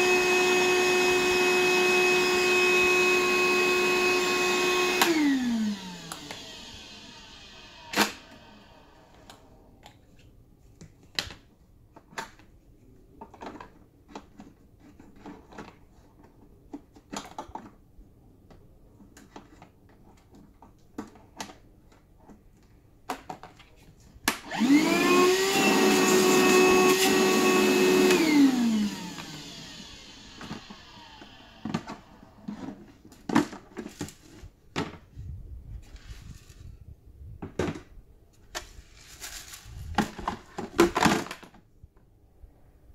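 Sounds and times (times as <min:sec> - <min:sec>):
vacuum motor whining: 0:00.0 - 0:09.4, 0:24.4 - 0:32.5.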